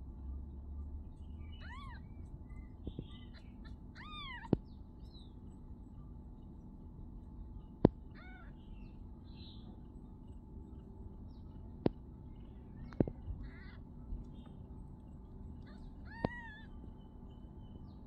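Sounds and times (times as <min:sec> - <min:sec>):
kitten mewing: 0:03.3 - 0:04.6, 0:08.1 - 0:08.5, 0:15.6 - 0:16.7.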